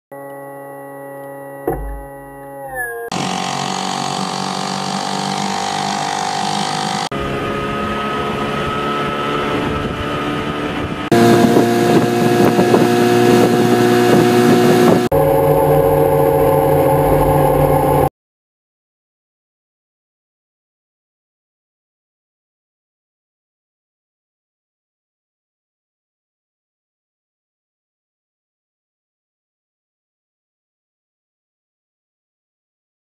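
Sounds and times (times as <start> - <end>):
outboard boat motors running: 1.6 - 2.5, 3.1 - 18.1.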